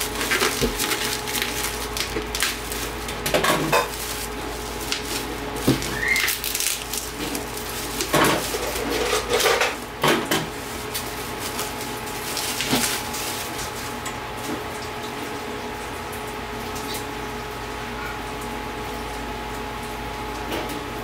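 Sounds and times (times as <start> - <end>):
bubble wrap crinkling: 0.0 - 14.8.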